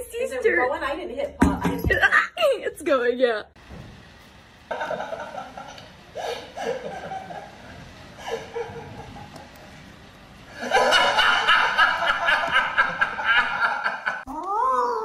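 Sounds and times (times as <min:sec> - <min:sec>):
man laughing loudly: 0:04.7 - 0:07.6, 0:08.2 - 0:09.4, 0:10.6 - 0:14.3.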